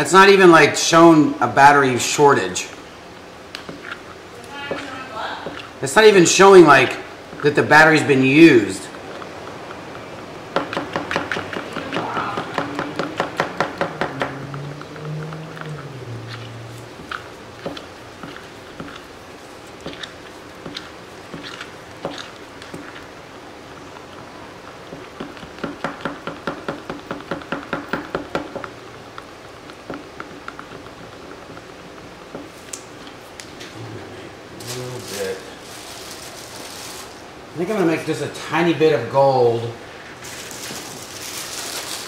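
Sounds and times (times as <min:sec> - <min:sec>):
faint low hum: 0:11.6 - 0:25.5.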